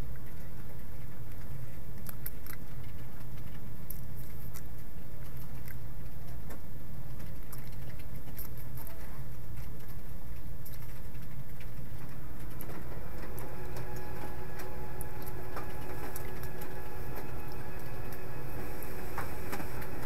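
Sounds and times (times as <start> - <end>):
faint steady hum: 0.0 - 20.0
low background rumble: 0.0 - 20.0.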